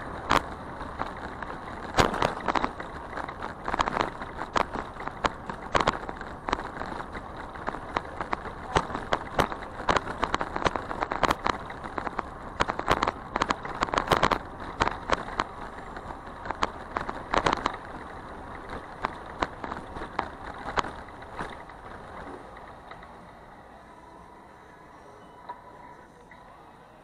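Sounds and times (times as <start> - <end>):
bicycle rattling and clicking: 0.0 - 24.6.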